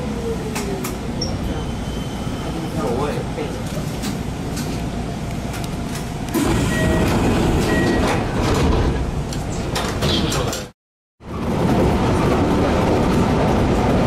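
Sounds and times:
electric train rumble: 0.0 - 10.0, 11.2 - 14.0
short beeps: 6.6 - 8.2.

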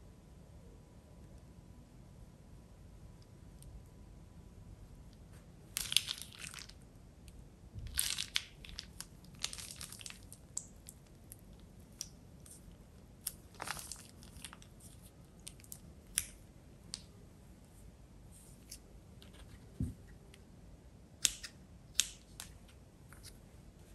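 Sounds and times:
plastic bag crinkling: 7.9 - 11.0, 13.3 - 15.8.

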